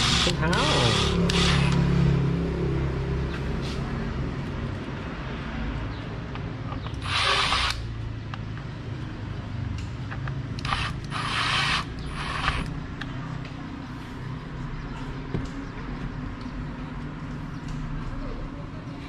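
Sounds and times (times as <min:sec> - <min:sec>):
cordless power driver whirring: 0:00.0 - 0:01.8, 0:06.9 - 0:07.8, 0:10.6 - 0:12.7.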